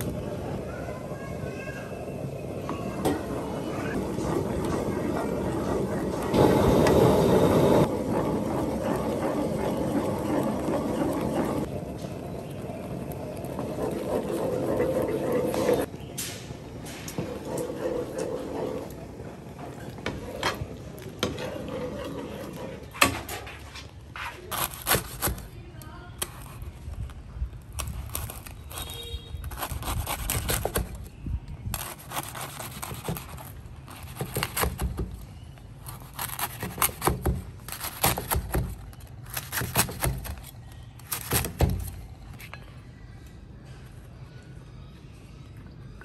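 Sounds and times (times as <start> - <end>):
knife cutting crusty bread: 24.3 - 25.5, 27.8 - 31.1, 31.7 - 35.0, 35.8 - 42.0.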